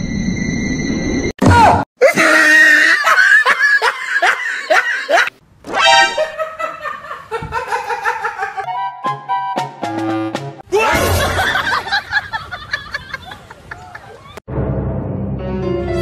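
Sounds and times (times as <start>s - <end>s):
people laughing hard: 2.1s - 5.3s, 6.0s - 8.7s, 11.0s - 14.3s.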